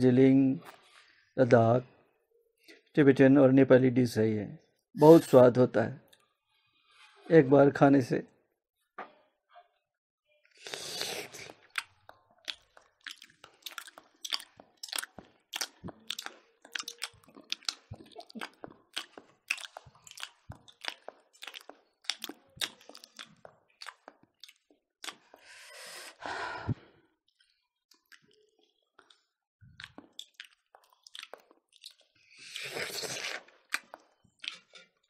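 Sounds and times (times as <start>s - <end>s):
chewing and lip-smacking: 10.7s - 25.5s, 27.3s - 35.0s.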